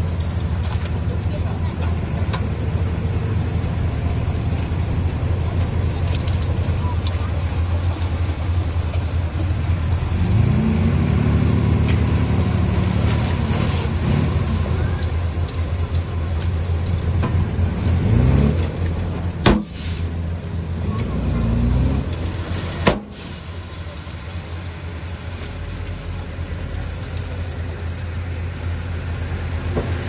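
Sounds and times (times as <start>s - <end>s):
bulldozer diesel engine revving: 0.0s - 30.0s
sharp knock: 19.4s - 19.8s.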